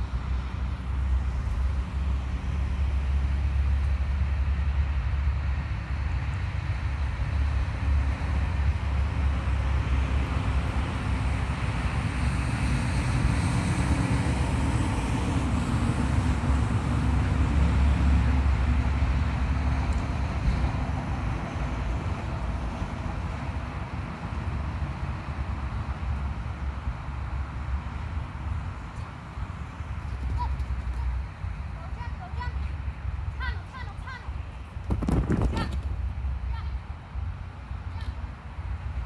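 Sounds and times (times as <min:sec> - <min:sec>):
low outdoor rumble: 0:00.0 - 0:39.0.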